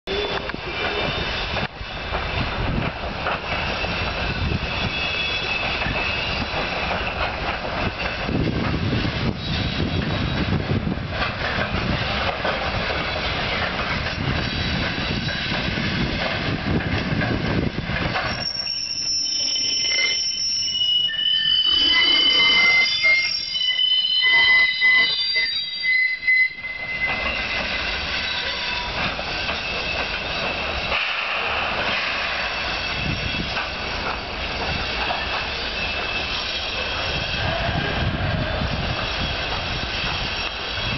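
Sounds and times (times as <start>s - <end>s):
shrill wheel squeal: 0.1s - 2.1s, 3.4s - 7.2s, 9.0s - 10.6s, 14.2s - 15.8s, 18.1s - 31.0s, 32.3s - 40.9s.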